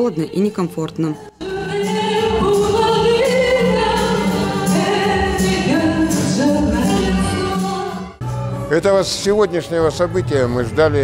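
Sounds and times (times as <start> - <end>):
woman singing: 0.0 - 8.2
guitar: 1.2 - 11.0.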